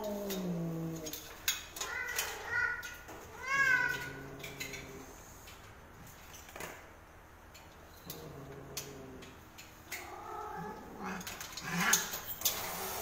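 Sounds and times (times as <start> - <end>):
cat growling moans: 0.0 - 1.2, 3.4 - 5.2, 8.0 - 9.4, 10.0 - 12.2.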